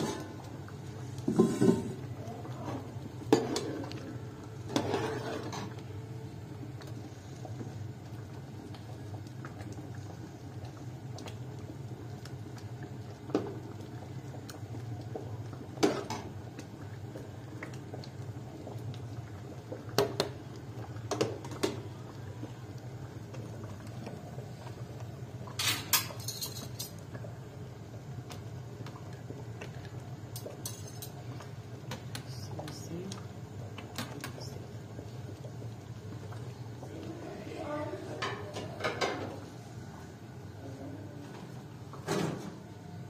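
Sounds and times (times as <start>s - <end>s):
utensils clinking against pots: 25.5s - 27.0s, 30.4s - 31.2s.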